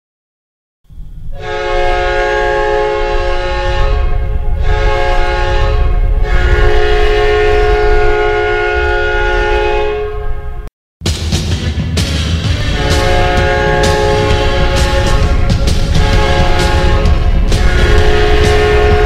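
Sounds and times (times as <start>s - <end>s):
low rumbling noise: 0.9s - 19.0s
multi-tone air horn blasts: 1.3s - 10.7s, 12.6s - 19.0s.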